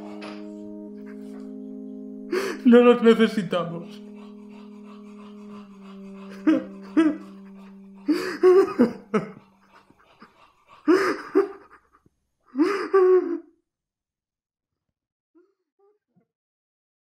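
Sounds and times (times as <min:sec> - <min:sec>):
held music chord: 0:00.0 - 0:09.7
man sobbing: 0:02.3 - 0:10.0, 0:10.8 - 0:11.9, 0:12.5 - 0:13.5.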